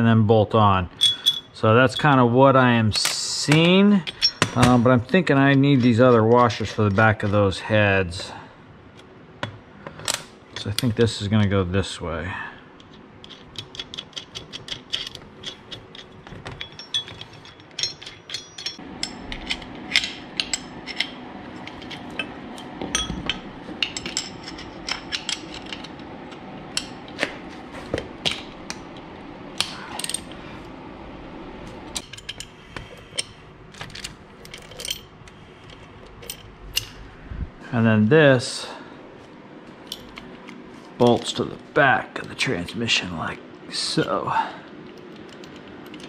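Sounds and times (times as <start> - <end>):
metal clinks of bolts: 0.9 - 2.2, 3.0 - 4.8, 13.2 - 25.9, 33.2 - 35.1.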